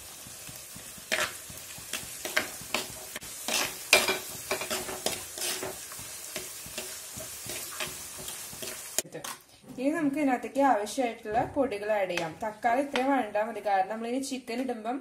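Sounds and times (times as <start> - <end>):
faint sizzle: 0.0 - 9.3
metal spoon scraping a pot: 2.3 - 5.8.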